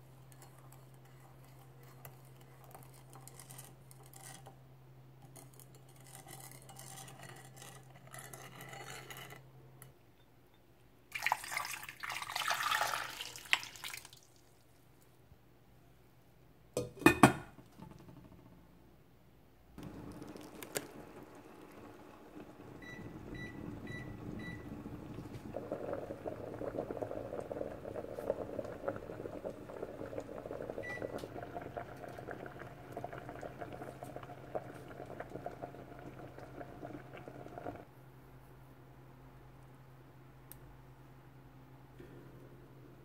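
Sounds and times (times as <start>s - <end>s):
water boiling in a pot: 0.0s - 4.6s, 5.2s - 9.1s, 11.1s - 14.7s, 19.8s - 37.9s
steady low hum: 19.7s - 37.8s.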